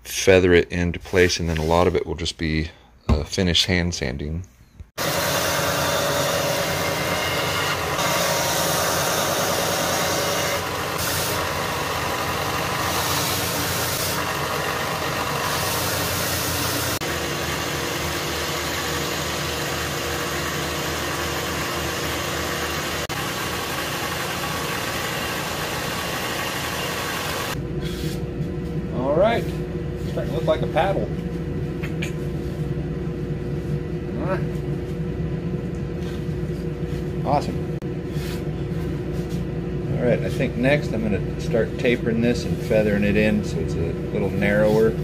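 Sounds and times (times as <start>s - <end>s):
belt sander grinding wood: 5.0s - 27.6s.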